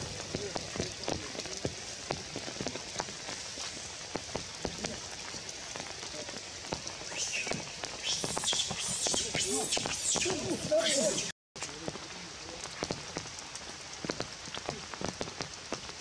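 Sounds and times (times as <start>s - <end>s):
water drips ticking: 0.0s - 10.5s, 11.6s - 16.0s
rain pattering on leaves: 0.0s - 16.0s
high-pitched squeaky calls: 7.1s - 11.3s.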